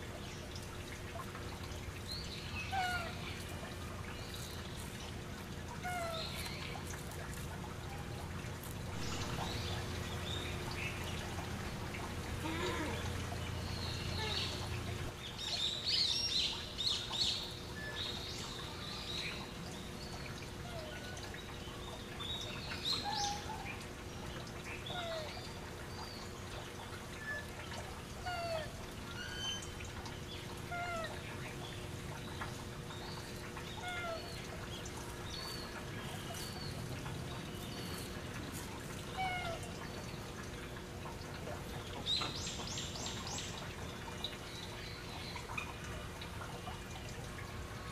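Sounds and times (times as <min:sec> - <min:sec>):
steady low hum: 0:00.0 - 0:15.8
monkeys giving coo calls: 0:12.4 - 0:13.1, 0:39.2 - 0:39.7.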